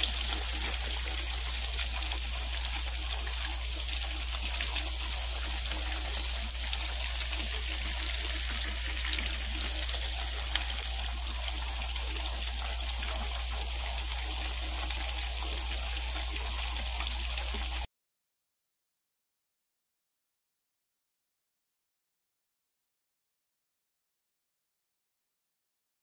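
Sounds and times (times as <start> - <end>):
fish deep-frying in hot oil: 0.0 - 17.9.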